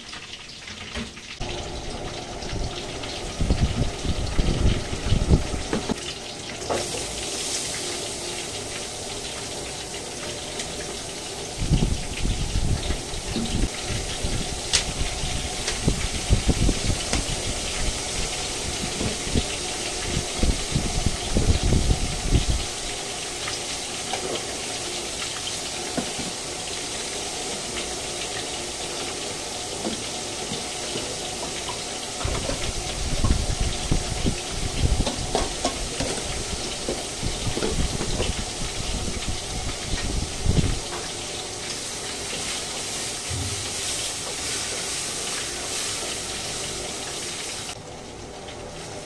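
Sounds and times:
chicken deep-frying in oil: 0.0 - 49.0.

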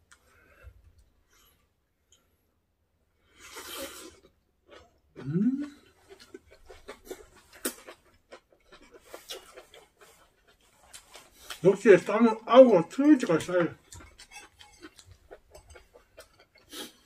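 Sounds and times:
wet smacking and chewing: 4.1 - 17.0.

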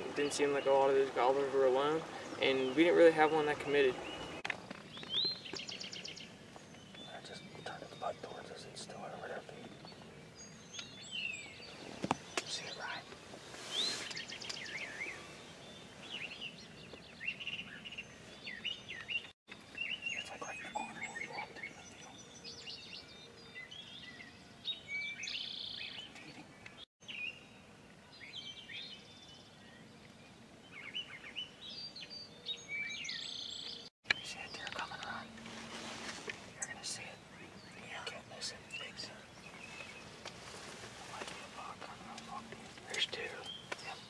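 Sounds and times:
low background hiss: 0.0 - 18.4, 33.2 - 44.0
songbirds chirping and whistling: 0.0 - 44.0.

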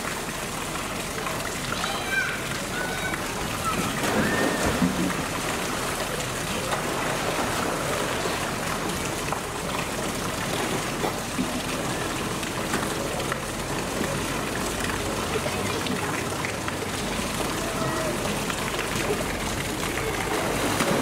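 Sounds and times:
churning water: 0.0 - 21.0
bear splashing into water: 3.6 - 9.6, 19.9 - 21.0.

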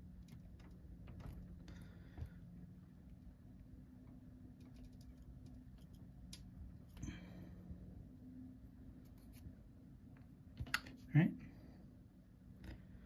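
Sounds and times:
small clicks and handling noise: 0.0 - 2.4, 3.0 - 7.0, 10.1 - 11.1, 12.5 - 13.0
low steady hum: 0.0 - 13.0.

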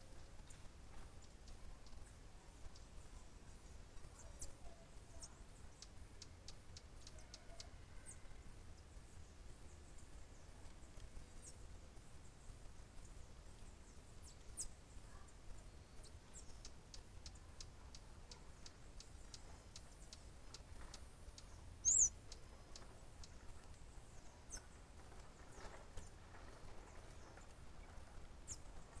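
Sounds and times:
high thin bird calls: 21.8 - 22.5.

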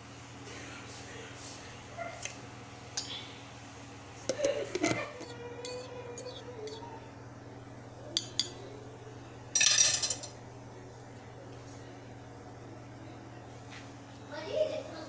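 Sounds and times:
metal fork clinking on ceramic mug: 5.6 - 6.8.

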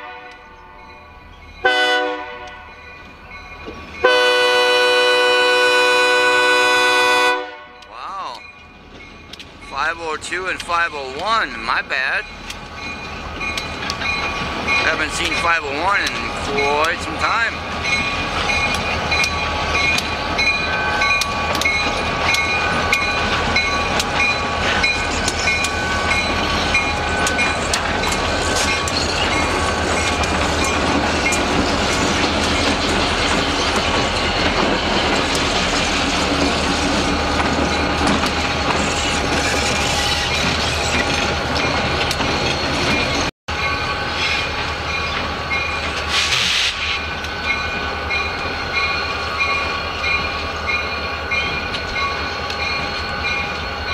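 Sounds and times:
wheels clicking over rail joints: 8.8 - 11.5, 12.2 - 50.8
short hiss: 46.1 - 47.0.

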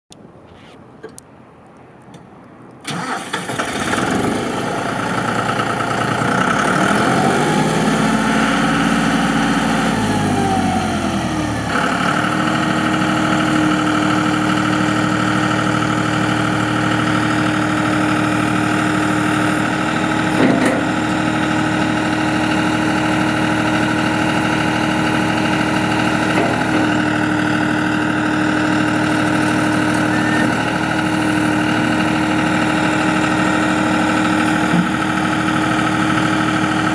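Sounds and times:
tractor diesel engine running: 2.8 - 36.9
hydraulic whine: 2.9 - 36.9
short clunk: 20.3 - 20.9.

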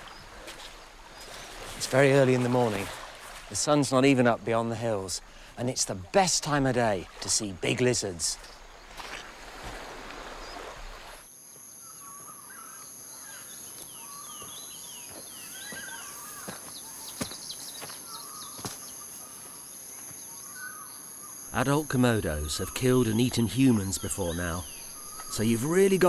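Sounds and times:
calm surf hissing on beach: 0.0 - 3.9, 5.0 - 11.3
high insect drone: 7.7 - 26.0.

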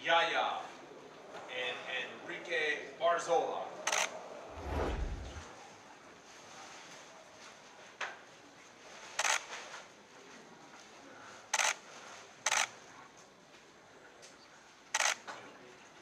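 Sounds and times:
camera shutter clicks: 3.9 - 4.2, 9.2 - 9.5, 11.6 - 11.8, 12.5 - 12.7, 15.0 - 15.2.

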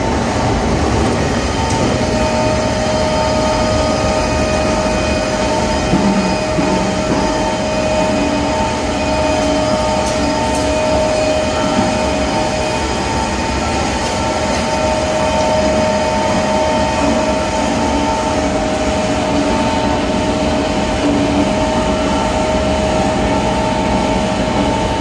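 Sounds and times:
steady machine whine: 0.0 - 25.0.

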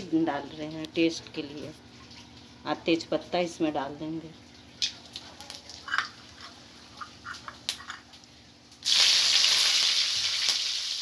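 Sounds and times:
spices crackling in hot oil: 4.4 - 11.0
loud sizzle of leaves in oil: 4.8 - 11.0.

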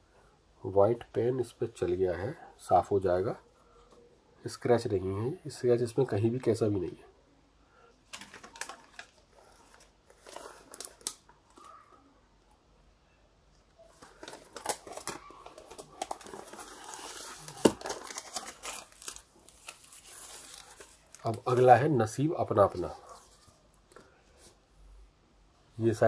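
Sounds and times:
record sleeve rustling: 8.1 - 11.9, 13.8 - 21.9.

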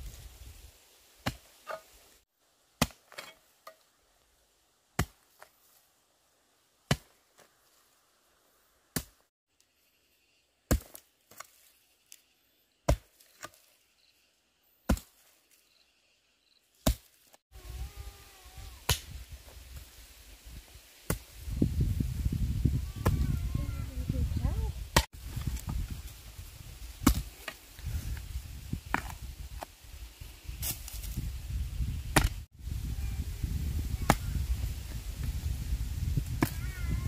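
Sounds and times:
sharp chopping strikes: 6.9 - 7.2, 10.7 - 11.0, 14.9 - 15.2, 16.8 - 17.2, 18.8 - 19.1, 27.0 - 27.6, 32.1 - 32.4.

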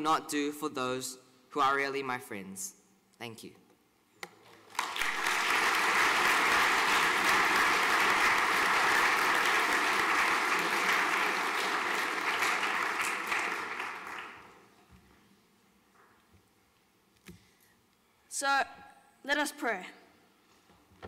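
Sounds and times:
audience applauding: 4.5 - 14.8.

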